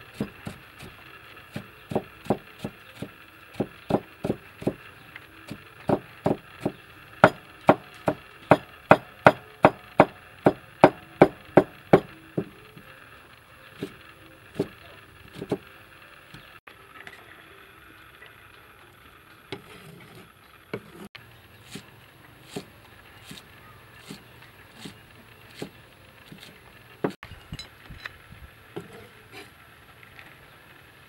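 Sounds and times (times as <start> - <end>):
cleaver chopping on wooden board: 1.6 - 4.8, 5.9 - 12.5, 15.4 - 15.6.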